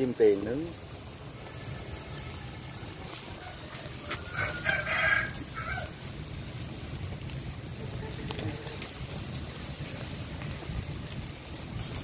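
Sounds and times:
steady low rumble: 0.7s - 12.0s
rooster crowing: 2.1s - 6.0s.

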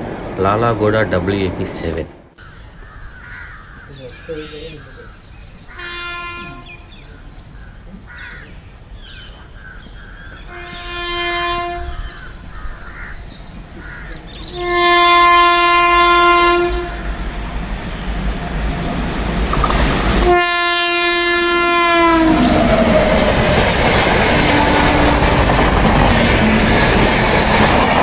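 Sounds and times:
train rumble: 0.0s - 2.9s, 10.2s - 28.0s
train air horn blasts: 5.7s - 7.0s, 10.5s - 12.0s, 14.5s - 17.2s, 20.1s - 22.7s.

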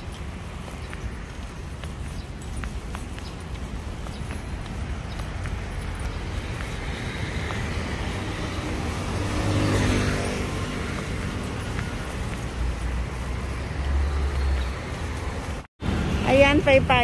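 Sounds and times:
street traffic: 0.0s - 17.0s
vehicle passing close by: 4.2s - 16.8s.

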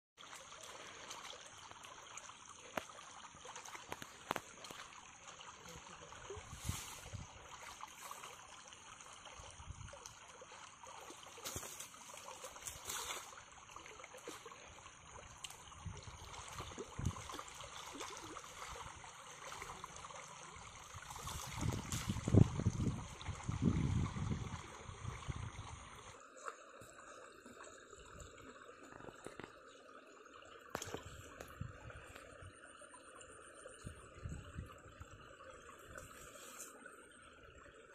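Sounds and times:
trickling water: 0.2s - 37.9s
splashing of wading feet: 10.8s - 13.4s, 16.2s - 20.0s, 21.0s - 22.4s.

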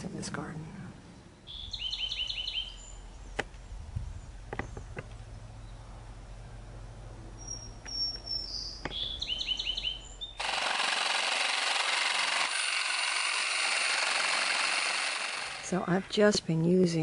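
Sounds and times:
bird chirps: 1.2s - 6.7s, 7.4s - 10.4s
power saw cutting wood: 10.4s - 15.8s.

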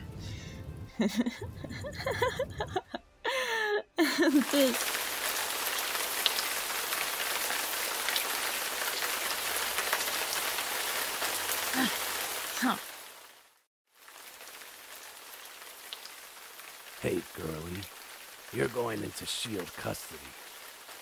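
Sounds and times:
rain hissing: 0.0s - 2.8s, 3.4s - 21.0s
raindrop ticks: 14.0s - 21.0s.

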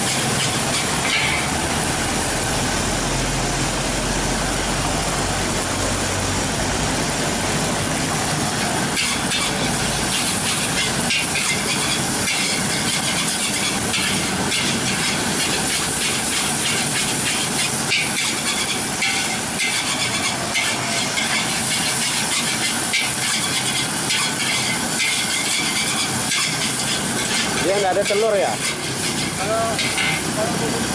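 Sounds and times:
metal spatula scraping wok: 0.0s - 1.7s, 8.9s - 30.2s
food sizzling in a wok: 0.0s - 5.1s, 7.4s - 30.9s.

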